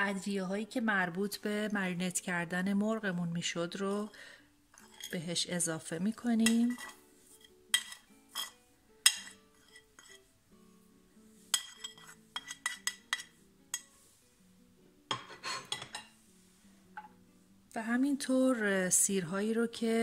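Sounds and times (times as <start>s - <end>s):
soft background music: 0.0s - 20.0s
metal spoon clinking on plate: 6.4s - 7.0s, 7.7s - 10.2s, 11.6s - 13.9s, 15.1s - 16.1s.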